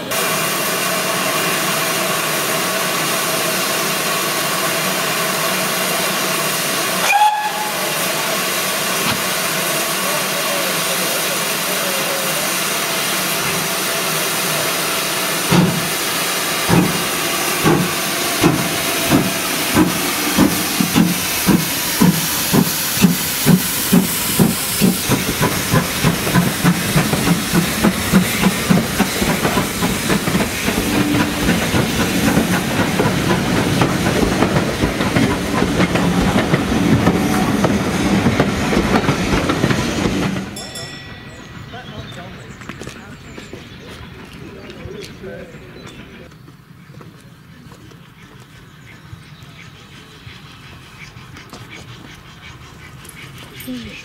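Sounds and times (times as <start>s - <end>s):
steam locomotive hissing: 0.0s - 46.2s, 47.4s - 54.0s
locomotive whistle: 7.0s - 8.2s
locomotive exhaust beats: 15.4s - 54.0s.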